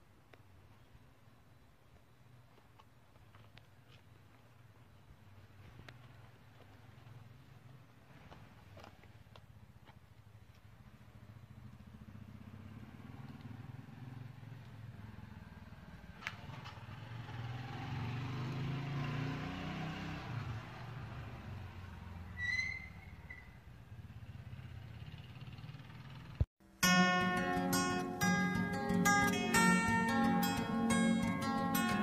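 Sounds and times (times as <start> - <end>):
vehicle engine passing: 11.6 - 22.2.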